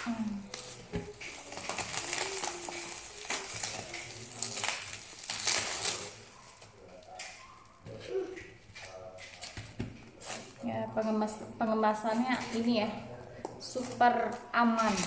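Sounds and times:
bubble wrap crinkling: 0.0 - 10.9, 11.6 - 15.0.

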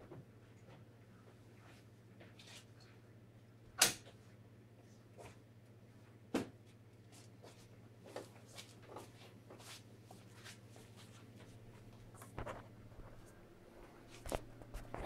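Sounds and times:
faint footsteps: 7.1 - 15.0.

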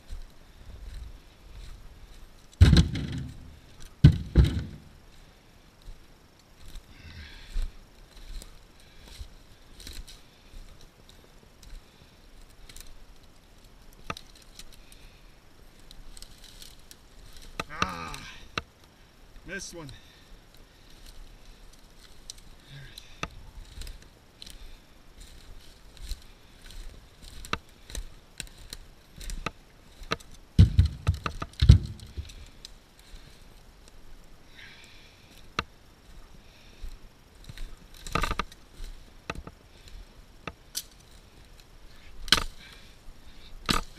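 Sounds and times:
footsteps through dry branches: 0.0 - 18.6, 19.5 - 43.9
heavy wooden thuds: 2.6 - 4.9, 30.6 - 32.4
twigs snapping underfoot: 7.5 - 19.0, 20.1 - 43.9
twig snapping: 14.0 - 15.0, 25.2 - 33.2, 37.4 - 42.8, 43.6 - 43.9.

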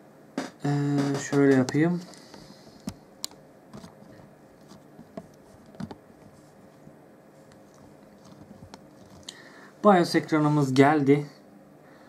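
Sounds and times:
faint steady hum: 0.0 - 12.0
faint taps and rustles: 3.7 - 9.3.

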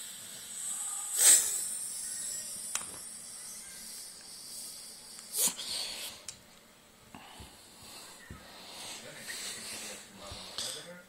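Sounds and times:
cat hissing: 5.3 - 6.2.

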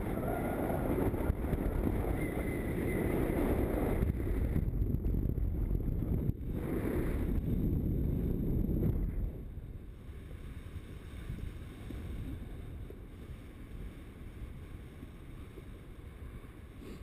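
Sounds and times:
wind buffeting microphone: 0.0 - 16.8.

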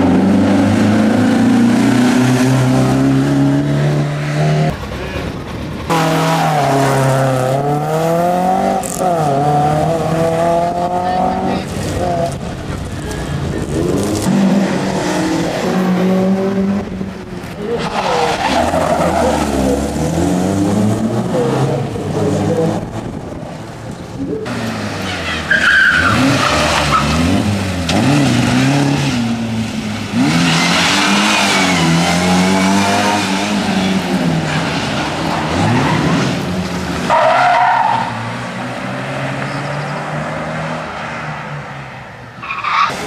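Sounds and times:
rally car engines revving: 0.0 - 43.0
tyres squealing: 25.0 - 27.2.

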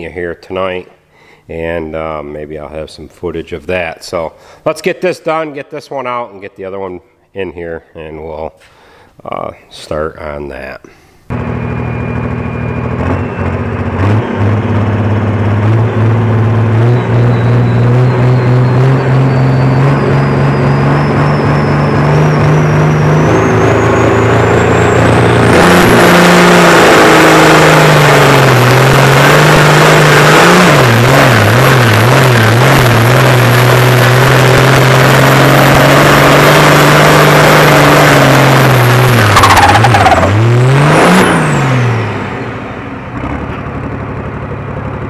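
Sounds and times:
tractor diesel engine running: 11.3 - 45.0.

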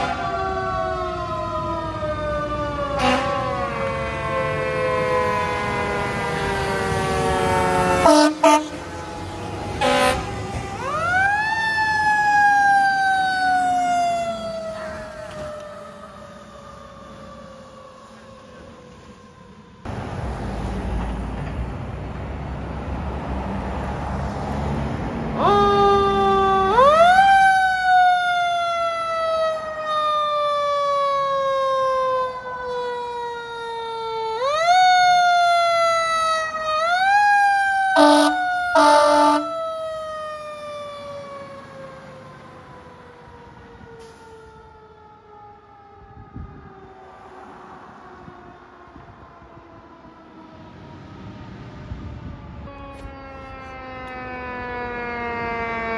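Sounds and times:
distant fire engine siren: 0.0 - 55.9
fire truck siren: 0.0 - 55.9
horn blasts: 7.9 - 9.2, 9.8 - 10.3, 38.0 - 39.6
truck engine rumbling: 18.2 - 25.8.

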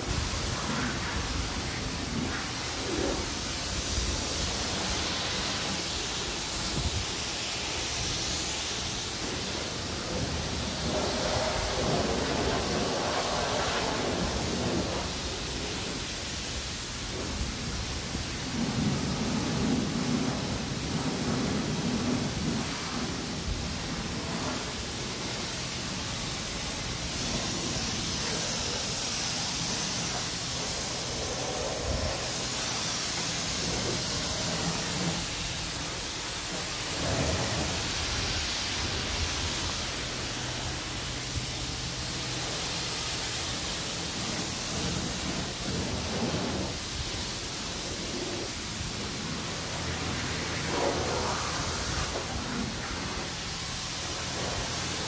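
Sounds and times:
pressure washer spraying water: 0.0 - 55.0.

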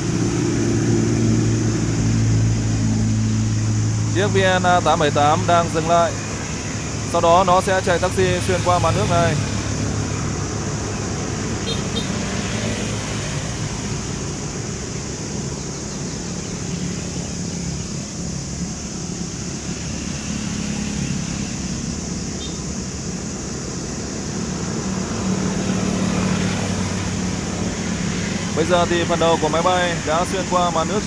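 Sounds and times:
fire truck engines pumping: 0.0 - 12.9.

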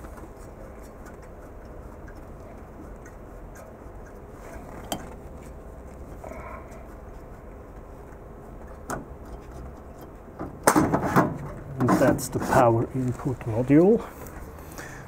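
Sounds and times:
metal scrape: 11.0 - 12.8.

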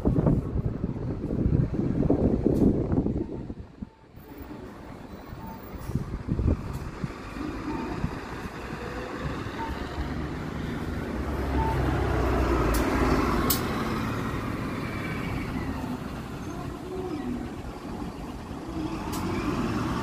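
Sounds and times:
bus engine rumble passing: 0.0 - 20.0
faint short beeps: 9.5 - 10.0, 11.6 - 11.9.

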